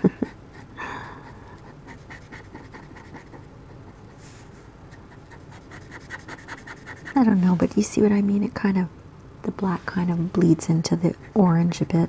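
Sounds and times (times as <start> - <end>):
soft breathy sound: 0.5 - 1.8
marker scratching on paper: 1.6 - 7.5.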